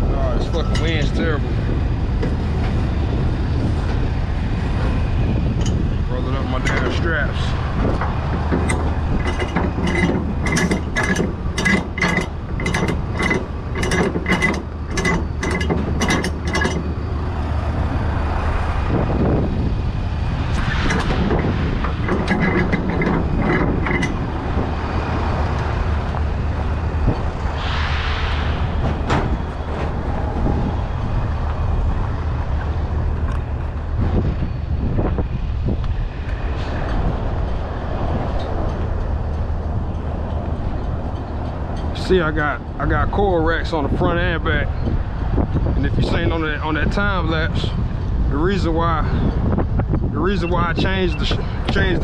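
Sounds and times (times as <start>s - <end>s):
handling noises: 6.5s - 18.1s, 20.4s - 27.7s.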